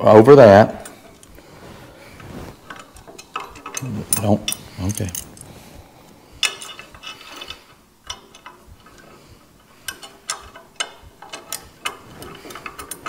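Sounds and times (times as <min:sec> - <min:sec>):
small metal parts clicking: 0:02.7 - 0:05.4, 0:06.4 - 0:13.0.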